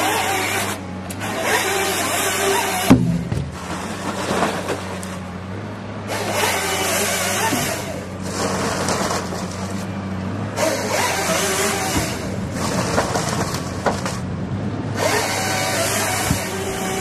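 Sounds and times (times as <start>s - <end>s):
harvester head hissing and rasping: 0.0s - 2.9s, 6.1s - 14.2s, 15.0s - 17.0s
diesel engine under load: 0.0s - 17.0s.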